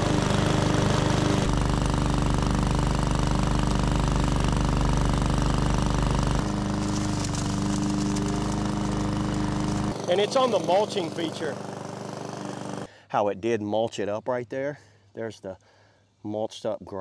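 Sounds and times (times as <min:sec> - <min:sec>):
lawn mower engine running: 0:00.0 - 0:12.9.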